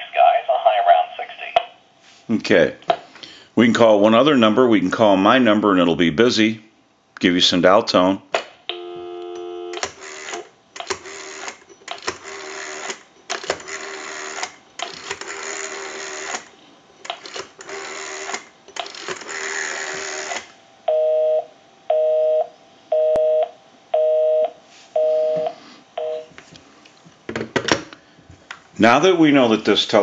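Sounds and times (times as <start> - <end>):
rotary telephone dial whirring: 9.8 - 16.5, 17.1 - 20.5
two-tone busy signal beeps: 20.9 - 26.3.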